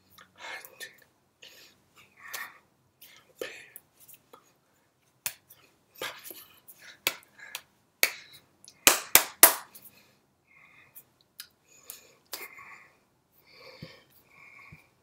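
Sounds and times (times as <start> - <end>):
breathy mouth sounds: 0.1 - 4.6, 10.8 - 15.0
hands clapping and slapping: 5.2 - 6.4, 7.0 - 9.9.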